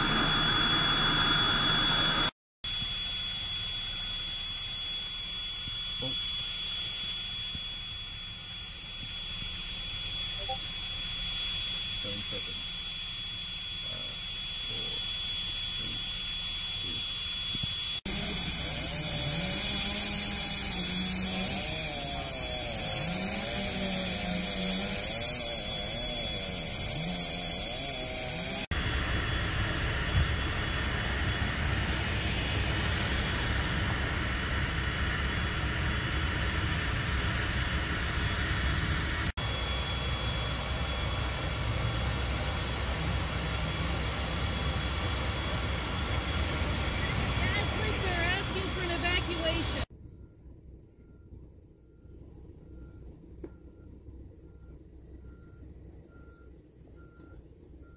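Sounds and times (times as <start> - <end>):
motor revving: 8.8 - 28.8, 39.4 - 49.9.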